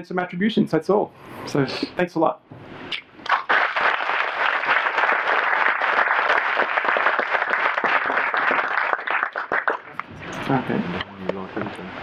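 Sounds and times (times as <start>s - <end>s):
audience applauding: 3.2s - 10.2s.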